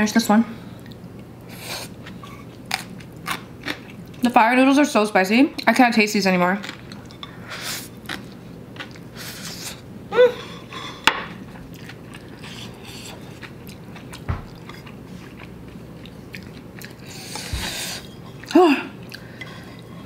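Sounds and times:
person humming: 0:10.1 - 0:10.6
person slurping and chewing noodles: 0:11.7 - 0:20.0.

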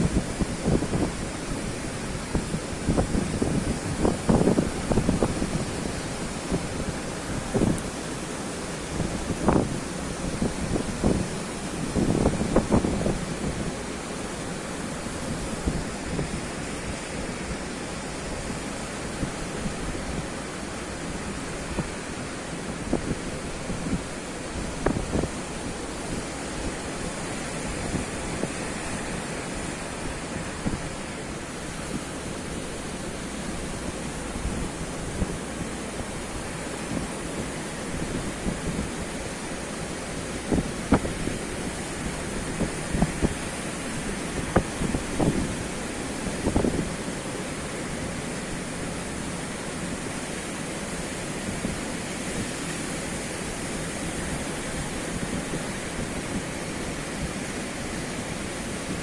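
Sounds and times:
ocean surf: 0:00.0 - 0:59.0
wind buffeting microphone: 0:00.0 - 0:59.0.

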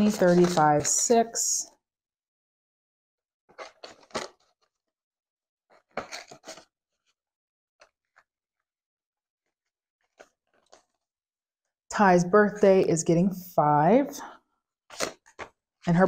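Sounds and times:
paper banknotes rustling: 0:00.0 - 0:01.1, 0:03.5 - 0:04.8, 0:05.7 - 0:06.7, 0:09.4 - 0:11.0, 0:14.9 - 0:15.6.

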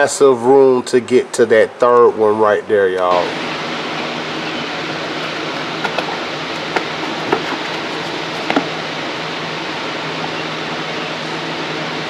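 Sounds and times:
fan-like hum: 0:00.0 - 0:12.0
cardboard box taps and knocks: 0:05.2 - 0:08.8.

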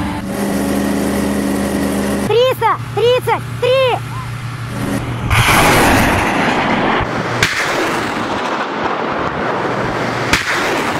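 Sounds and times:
rocket motor roaring: 0:00.0 - 0:10.9
sharp crack: 0:05.0 - 0:10.9.

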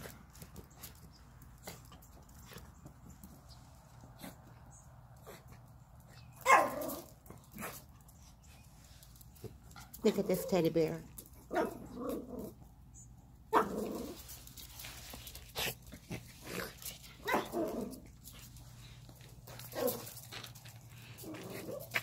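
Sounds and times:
small dogs barking and growling: 0:06.2 - 0:08.1, 0:09.8 - 0:12.7, 0:13.4 - 0:22.0.

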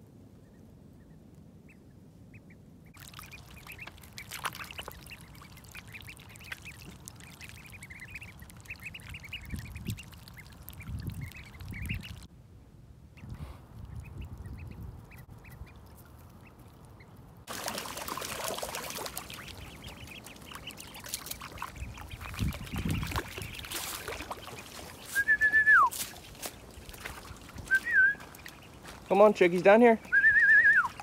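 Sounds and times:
ducklings peeping: 0:00.3 - 0:12.3, 0:13.2 - 0:31.0
water splashing: 0:03.0 - 0:12.3, 0:15.7 - 0:31.0
person whistling: 0:25.1 - 0:25.9, 0:27.7 - 0:28.2, 0:30.1 - 0:31.0.

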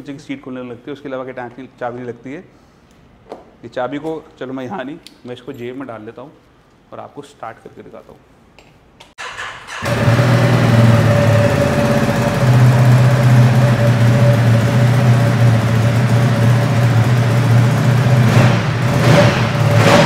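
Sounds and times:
motorcycle engine idling: 0:09.8 - 0:19.7.

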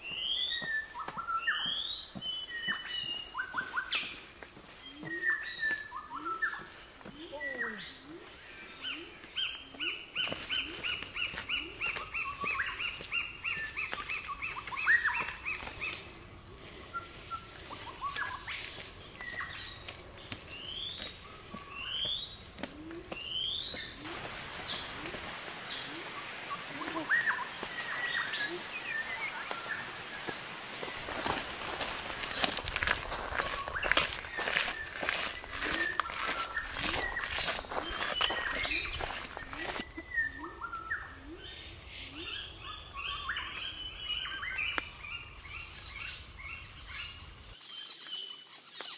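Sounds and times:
forest birds calling: 0:00.0 - 0:48.9.

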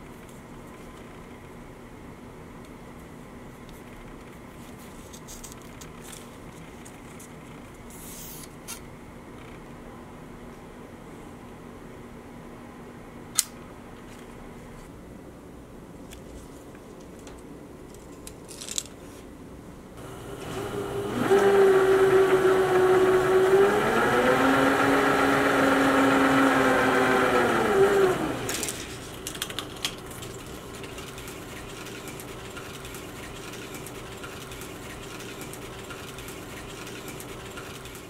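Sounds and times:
motor whining: 0:20.0 - 0:29.0.

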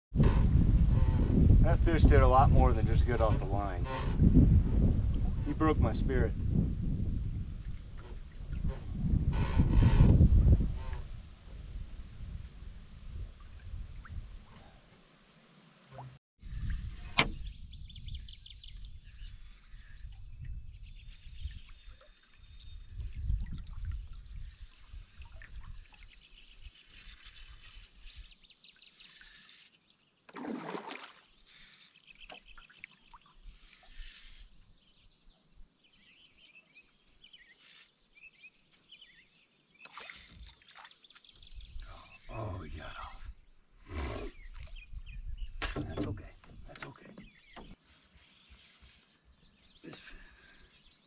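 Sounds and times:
water trickling and lapping: 0:07.1 - 0:10.1, 0:13.1 - 0:17.6, 0:18.2 - 0:38.2, 0:39.6 - 0:42.8, 0:43.4 - 0:51.0
birds singing faintly: 0:13.5 - 0:51.0
water splash: 0:30.3 - 0:31.4.

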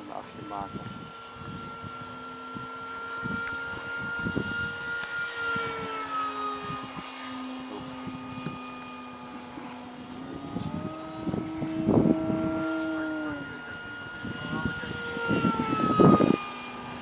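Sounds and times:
model plane motor whining: 0:00.0 - 0:17.0.

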